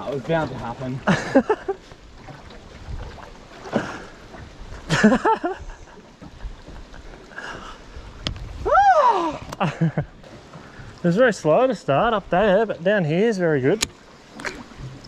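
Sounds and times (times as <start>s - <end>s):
water around boat: 0.0s - 15.0s
wind: 0.0s - 15.0s
short vocal cry: 8.6s - 9.5s.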